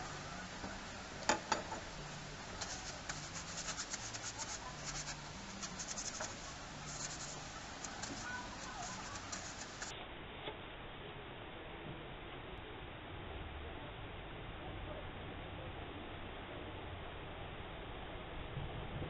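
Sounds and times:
cloth rubbing on copper pipe: 0:02.1 - 0:09.9.

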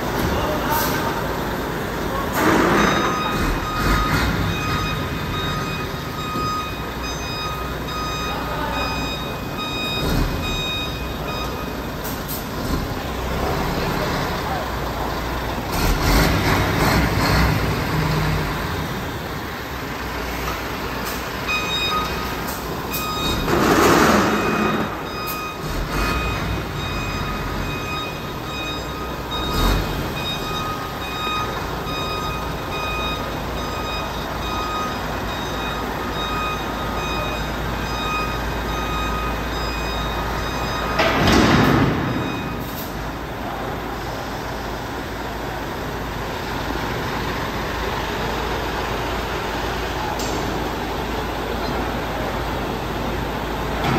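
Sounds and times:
diesel truck engine: 0:00.0 - 0:53.9
reversing alarm beeping: 0:00.2 - 0:19.2, 0:21.0 - 0:44.6.

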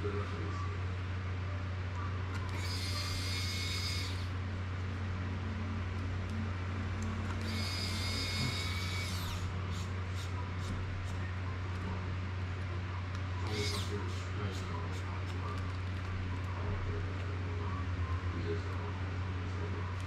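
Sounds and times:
steady low hum: 0:00.0 - 0:20.0
electric screwdriver whirring: 0:02.4 - 0:04.3, 0:07.3 - 0:10.3, 0:13.4 - 0:14.0.

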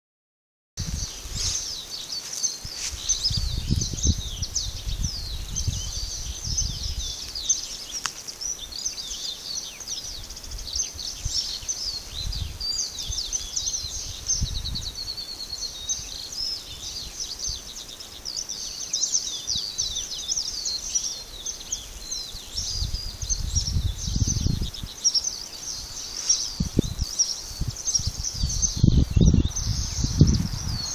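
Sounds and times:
wind buffeting microphone: 0:00.8 - 0:01.8, 0:02.6 - 0:07.6, 0:10.0 - 0:15.2, 0:22.0 - 0:30.9
small birds chirping: 0:00.8 - 0:30.9.

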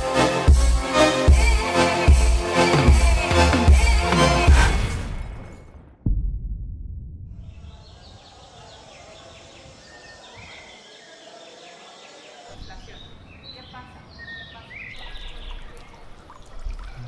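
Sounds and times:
bird chirps: 0:07.4 - 0:16.1
faint voices: 0:07.6 - 0:17.0.

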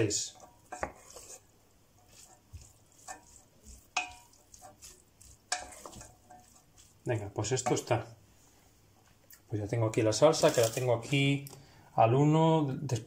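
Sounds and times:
wooden spoon knocking on metal pot: 0:02.5 - 0:04.8.

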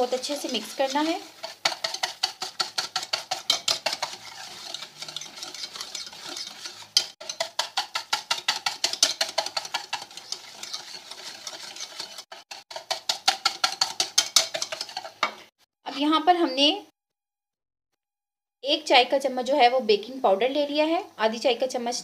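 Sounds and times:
utensil beating in bowl: 0:00.0 - 0:15.4.

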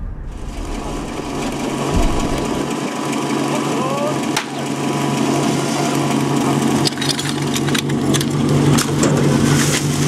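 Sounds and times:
fire pump engine running: 0:00.0 - 0:10.0
hoses clicking and knocking: 0:06.8 - 0:09.9.

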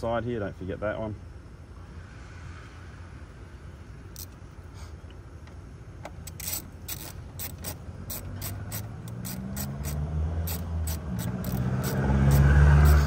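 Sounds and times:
vehicle engine hum: 0:00.0 - 0:13.0
hand ratchet clicking: 0:06.0 - 0:13.0.

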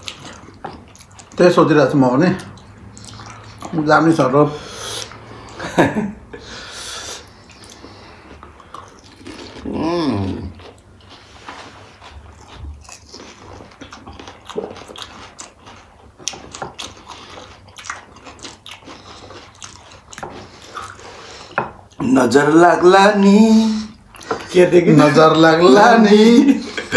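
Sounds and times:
chewing and crunching: 0:00.0 - 0:05.7, 0:07.2 - 0:22.1
person humming: 0:09.7 - 0:10.5.

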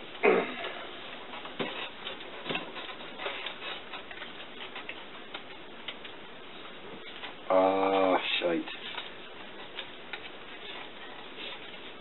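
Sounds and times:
playing cards clicking and rustling: 0:01.4 - 0:07.4, 0:08.7 - 0:12.0.

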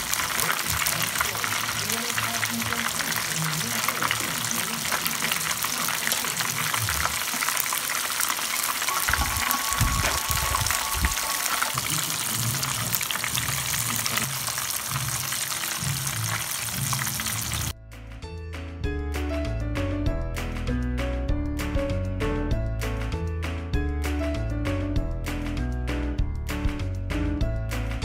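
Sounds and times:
shrimp deep-frying in oil: 0:00.0 - 0:17.8
music: 0:08.9 - 0:13.1, 0:15.0 - 0:28.0.

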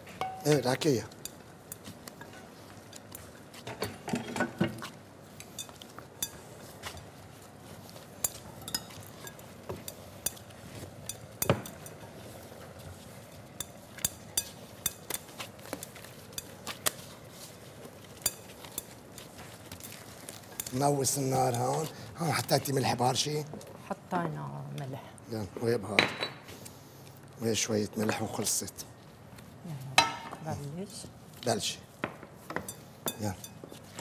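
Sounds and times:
dishes and utensils clinking: 0:00.1 - 0:16.8, 0:32.5 - 0:34.0
dough kneaded by hand: 0:04.8 - 0:22.7.

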